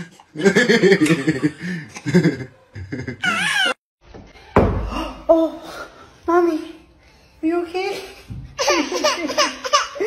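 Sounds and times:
baby squealing and laughing: 3.2 - 3.8.

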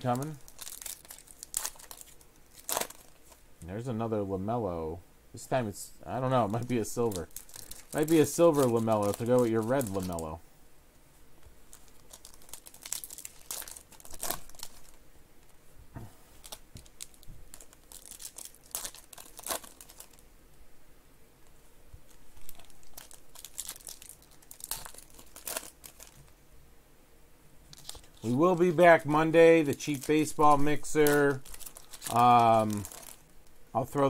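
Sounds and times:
foil wrappers crinkling and tearing: 0.0 - 3.4, 6.5 - 10.3, 11.7 - 15.0, 16.4 - 20.2, 22.1 - 26.3, 27.7 - 34.0.

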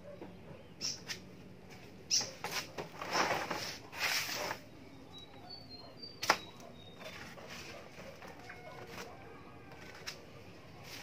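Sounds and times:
plastic pipes scraping and rustling: 2.4 - 4.7, 7.0 - 11.0.

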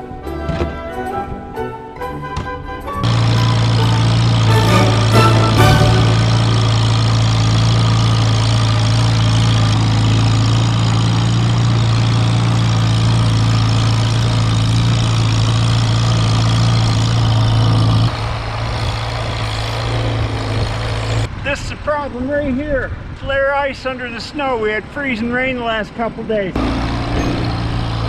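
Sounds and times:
tractor engine running: 2.2 - 21.4, 26.6 - 28.0.

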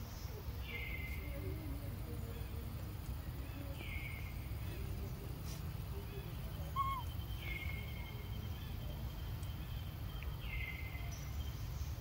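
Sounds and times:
thin high-pitched calls: 6.6 - 7.9
short falling chirp: 6.8 - 7.1.

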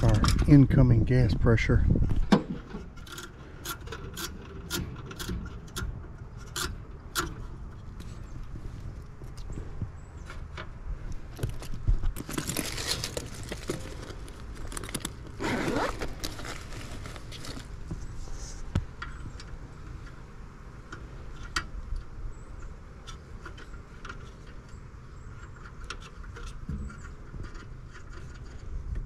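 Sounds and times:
hose rustling: 11.2 - 18.7.

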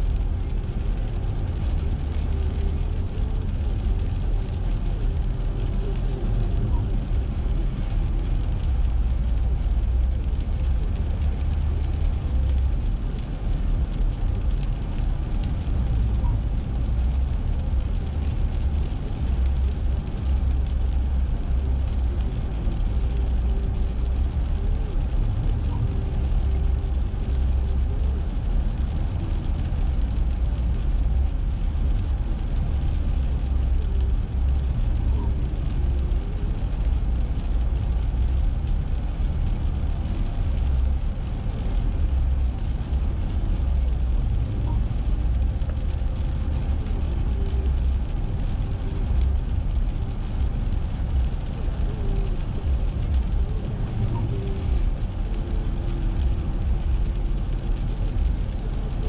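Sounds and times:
car driving on wet road: 0.0 - 59.0.

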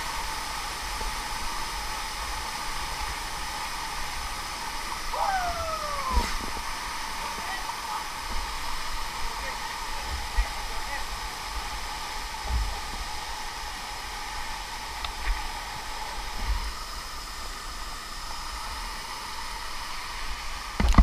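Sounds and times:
waterfall and stream rushing: 0.0 - 21.0.

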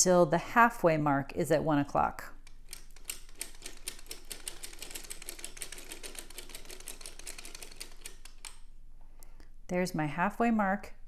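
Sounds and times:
sock machine clicking: 2.4 - 8.6.

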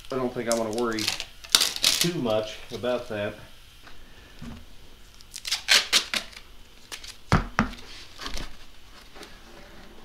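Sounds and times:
cardboard crinkling and scraping: 5.7 - 10.0.

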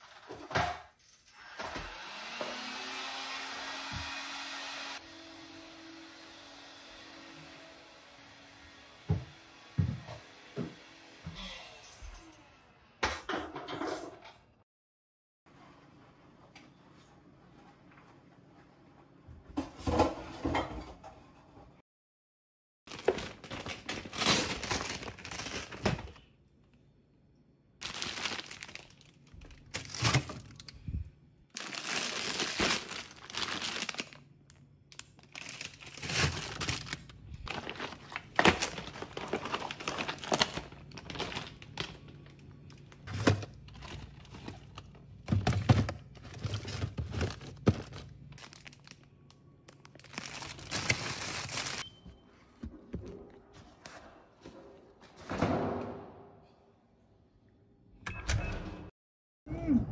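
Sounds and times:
plastic bags crinkling: 22.9 - 26.3, 27.8 - 30.8, 31.5 - 34.2, 34.9 - 51.8.

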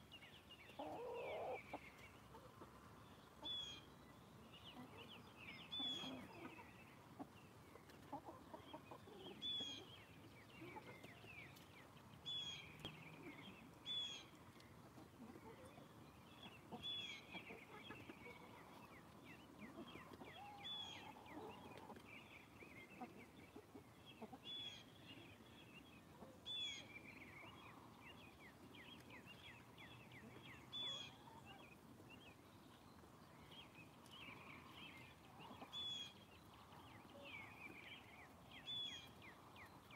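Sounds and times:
hens clucking softly: 4.6 - 11.7, 14.4 - 25.3.

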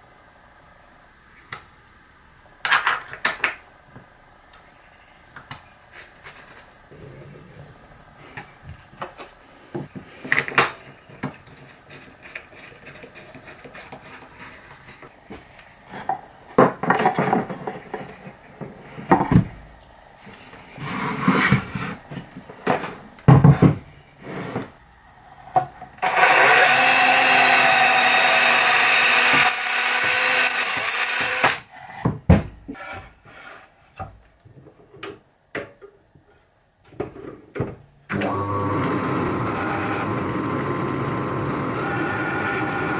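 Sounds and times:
power tool running: 26.0 - 31.6, 38.1 - 42.9.

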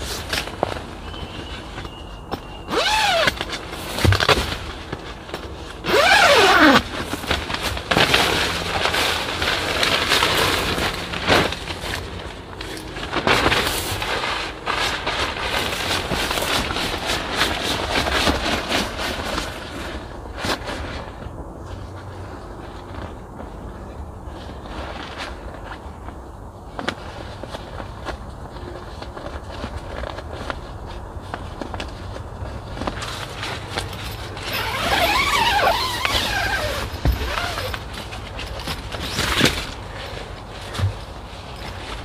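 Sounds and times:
tent fabric rustling and crinkling: 0.0 - 42.0
tent zipper pulled open: 2.7 - 4.4, 5.8 - 7.1, 34.4 - 37.9.

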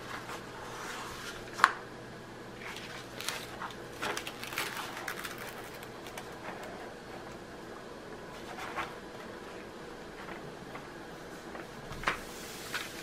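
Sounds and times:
paper rustling and crinkling: 2.6 - 7.3, 8.3 - 9.0, 10.2 - 13.0.

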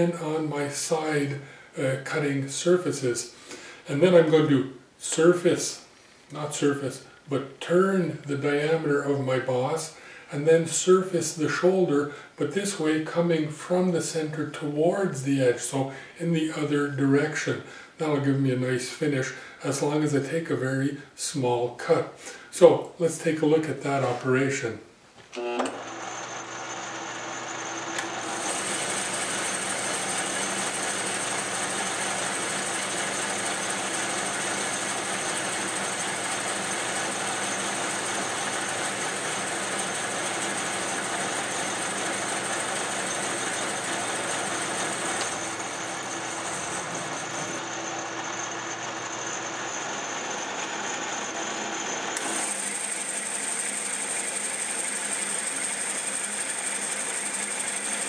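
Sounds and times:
metal lathe cutting: 25.6 - 58.0.

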